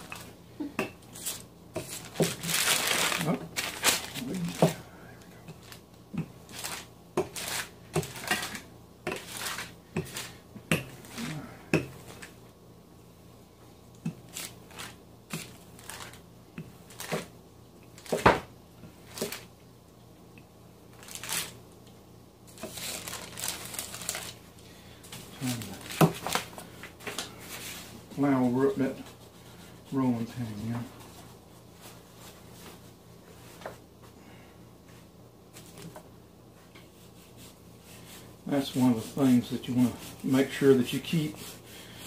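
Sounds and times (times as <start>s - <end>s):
paper crinkling and rustling: 1.2s - 4.8s, 5.6s - 5.8s, 6.4s - 10.4s, 14.3s - 16.2s, 16.8s - 17.3s, 21.0s - 21.6s, 22.5s - 24.4s, 25.2s - 27.8s.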